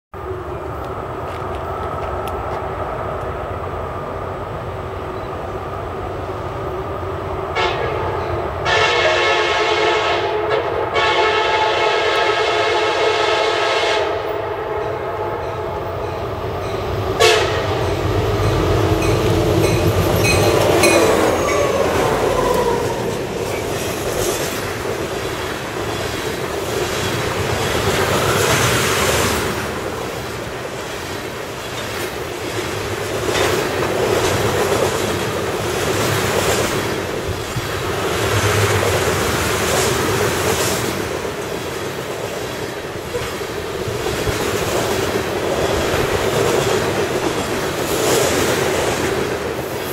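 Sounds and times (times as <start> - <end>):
train rumbling: 0.2 - 49.9
train horn: 7.5 - 16.2, 17.2 - 19.8
wheels clacking over rail joints: 15.5 - 49.8.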